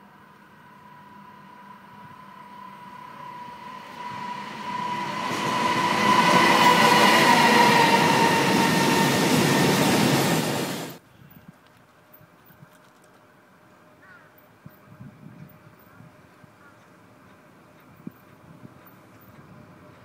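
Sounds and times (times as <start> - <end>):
freight train rolling past: 0.0 - 11.0.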